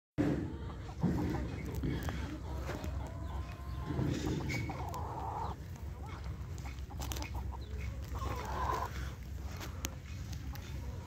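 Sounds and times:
hens clucking: 0.2 - 11.0.

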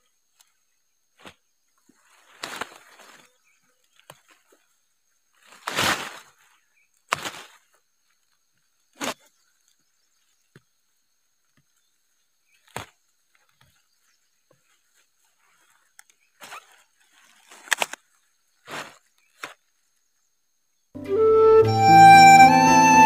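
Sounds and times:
leaves rustling: 1.2 - 10.4, 11.8 - 20.2
plant stems snapping: 15.9 - 18.0.

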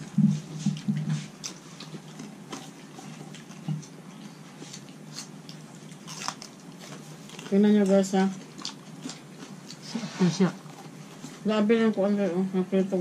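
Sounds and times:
clicks and smacks of eating: 0.2 - 9.8.

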